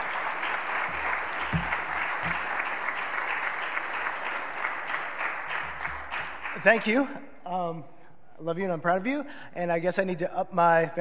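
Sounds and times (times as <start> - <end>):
crowd applauding: 0.0 - 7.1.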